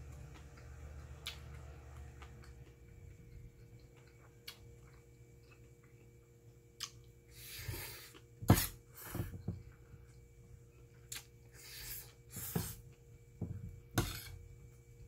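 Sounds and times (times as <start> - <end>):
soft chewing: 0.0 - 8.4
spoon scraping metal bowl: 13.9 - 14.4.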